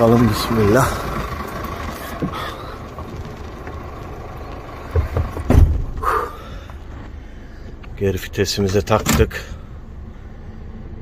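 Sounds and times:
truck diesel engine running: 0.0 - 11.0
heavy thumps: 4.8 - 6.8.

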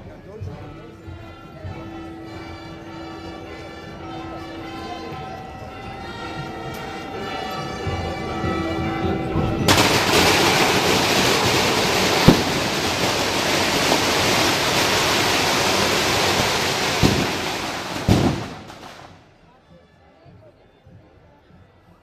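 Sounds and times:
firecracker bangs: 9.7 - 19.3
firecrackers crackling: 9.7 - 19.3.

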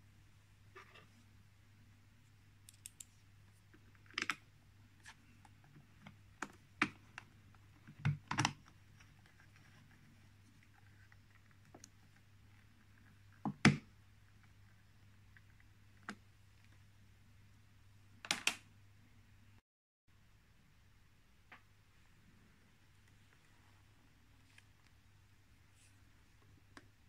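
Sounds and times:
small metallic clicks: 2.6 - 3.2.

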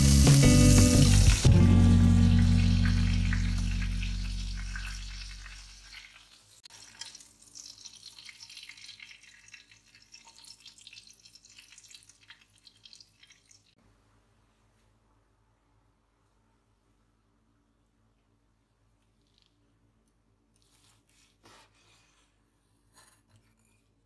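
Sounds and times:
background music: 0.0 - 5.2
garlic butter sizzling: 0.0 - 13.8.

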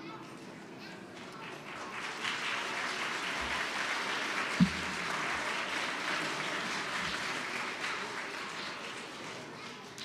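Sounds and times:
audience applauding: 1.4 - 9.7
low thump: 4.6 - 5.0.

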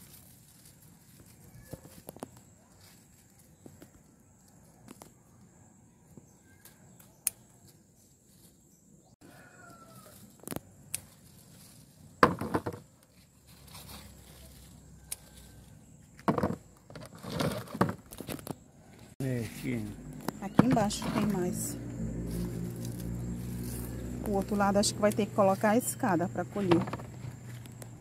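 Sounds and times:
leaves rustling and crackling: 0.0 - 5.5, 9.5 - 16.2, 17.1 - 26.4.

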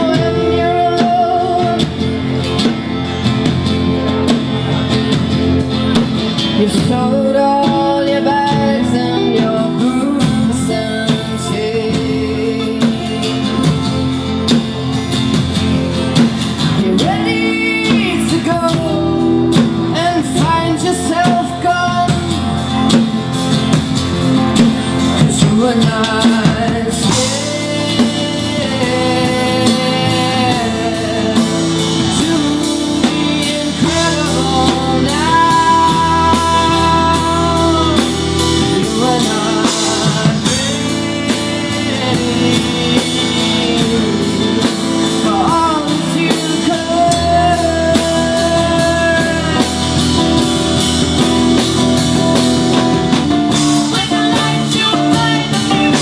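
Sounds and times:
woman singing: 0.0 - 2.7, 6.6 - 13.8, 16.6 - 23.1, 25.1 - 50.5, 53.5 - 56.0
drum kit: 0.0 - 56.0
electric bass: 0.0 - 56.0
strummed acoustic guitar: 0.0 - 56.0.

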